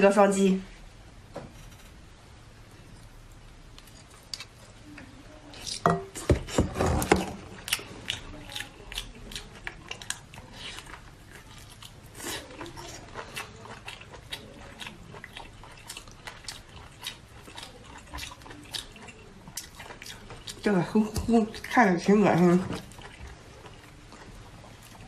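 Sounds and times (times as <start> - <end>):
food crunching: 3.0 - 25.0
person chewing with lip smacks: 7.4 - 21.8.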